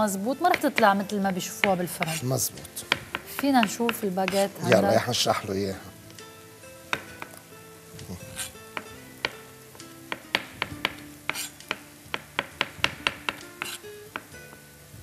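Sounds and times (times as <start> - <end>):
soft background music: 0.0 - 15.0
knife slicing on cutting board: 8.0 - 8.6, 10.7 - 11.6, 12.6 - 13.8.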